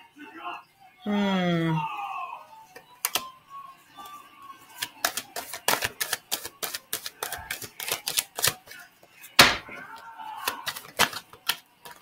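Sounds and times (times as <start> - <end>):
cards being shuffled: 3.0 - 3.3, 4.0 - 12.0.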